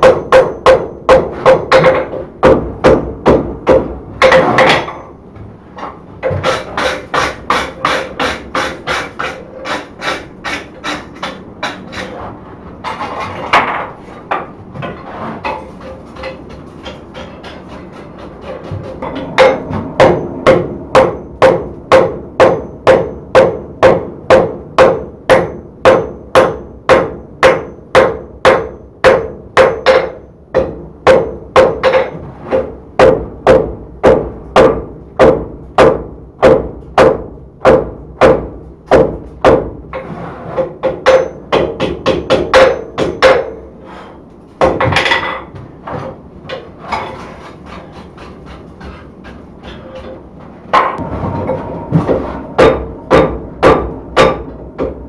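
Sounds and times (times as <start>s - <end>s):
hammer ringing on anvil: 19.0s - 31.9s, 41.0s - 43.7s, 50.8s - 55.0s.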